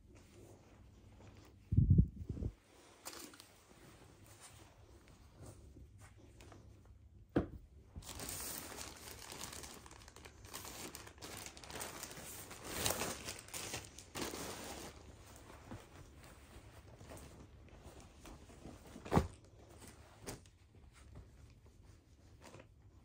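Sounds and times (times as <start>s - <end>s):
plastic mailer bag crinkling: 8.0s - 15.2s.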